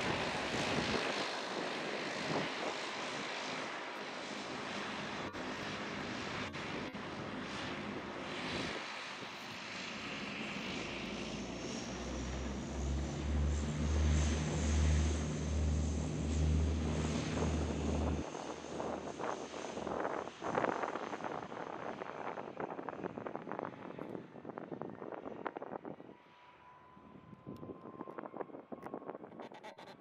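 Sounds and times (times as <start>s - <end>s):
turboprop engines roaring: 0.0s - 29.6s
pulsing low drone: 10.1s - 20.8s.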